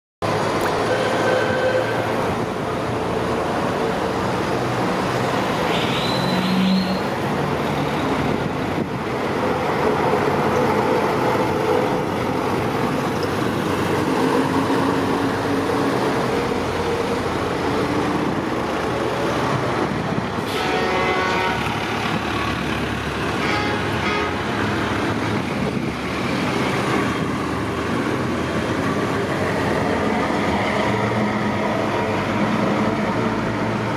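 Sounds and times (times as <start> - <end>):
street traffic: 0.2 - 33.9
lorry engines driving past: 0.3 - 33.9
vehicle horn toots: 0.8 - 2.1, 20.5 - 21.8, 23.4 - 24.4.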